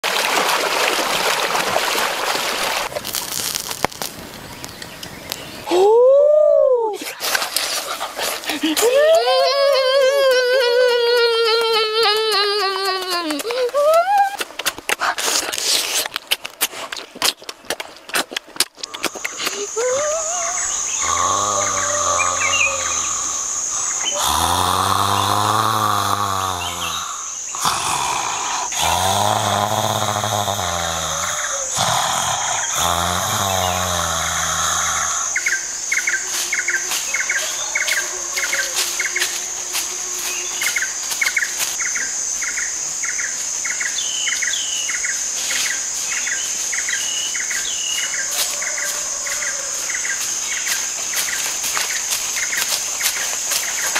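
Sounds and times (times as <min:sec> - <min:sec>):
high insect drone: 0:07.6 - 0:14.3, 0:18.9 - 0:53.9
bird calls: 0:18.9 - 0:27.6
man snoring loudly: 0:21.0 - 0:35.4.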